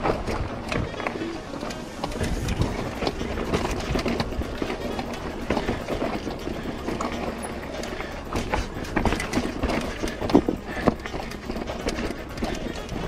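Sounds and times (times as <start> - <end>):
mountain bike rattling on rocks: 0.0 - 13.0
rushing air noise: 1.8 - 11.4.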